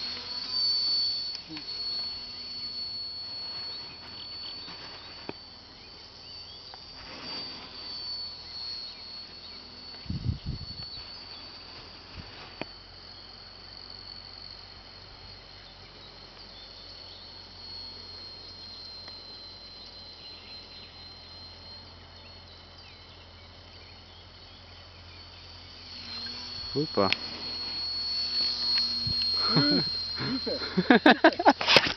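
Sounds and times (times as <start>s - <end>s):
model plane motor whine: 0.0s - 31.9s.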